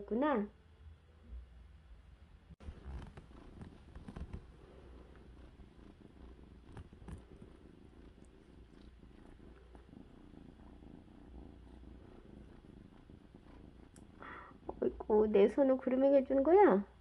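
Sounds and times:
kitten purring: 2.6 - 17.0
faint clicks: 13.8 - 14.3.

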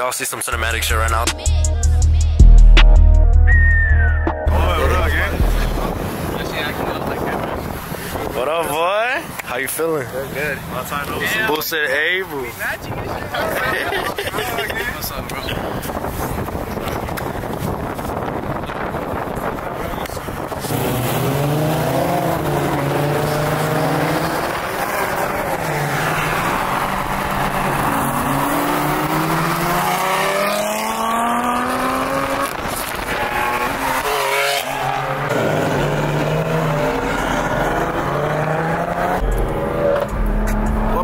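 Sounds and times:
steady low drone: 0.6 - 6.1
car engine revving hard: 20.6 - 41.0.

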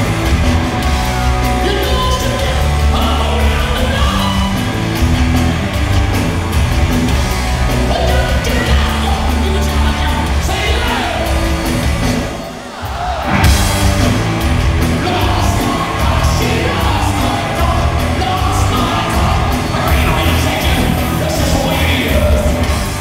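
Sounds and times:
distorted electric guitars: 0.0 - 23.0
drums: 0.0 - 23.0
hard rock band playing: 0.0 - 23.0
person singing: 14.9 - 22.8.

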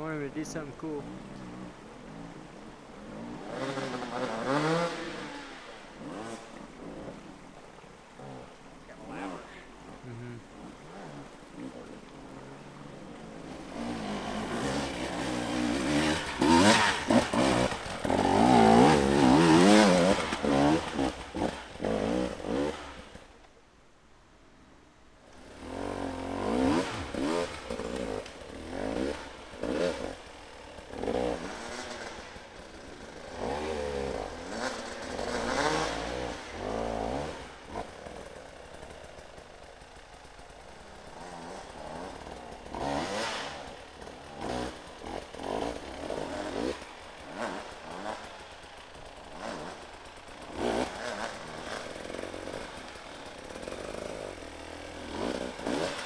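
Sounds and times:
dirt bike engine revving: 0.0 - 23.2, 25.4 - 56.0.

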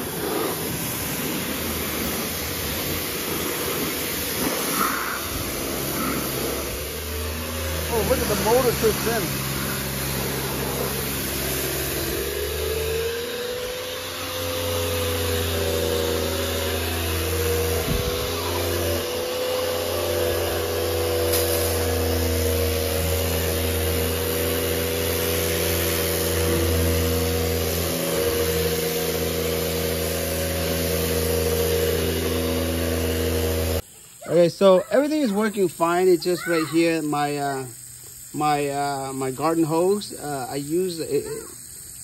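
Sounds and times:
pressure washer motor humming: 0.0 - 42.0
water jet spraying hiss: 0.0 - 42.0.

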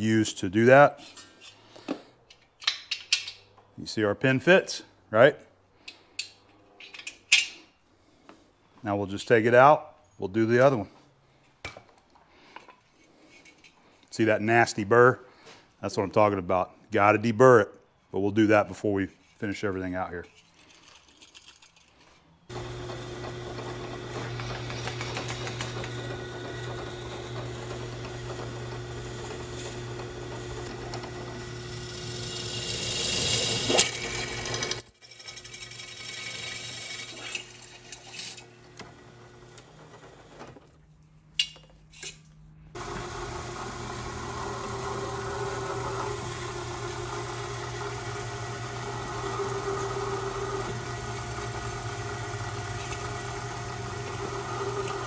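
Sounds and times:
milling machine drilling steel: 22.5 - 34.8, 42.8 - 55.0
drill press running: 22.5 - 40.6, 42.7 - 55.0.

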